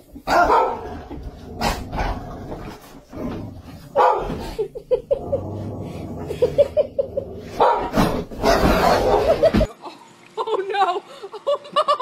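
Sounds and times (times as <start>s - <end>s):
dogs barking and yipping: 0.3s - 0.9s, 3.9s - 4.4s, 7.6s - 9.7s.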